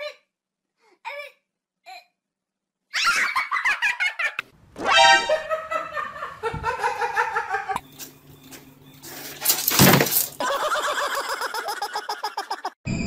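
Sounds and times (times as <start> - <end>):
person laughing: 5.0 - 7.8, 10.4 - 12.8.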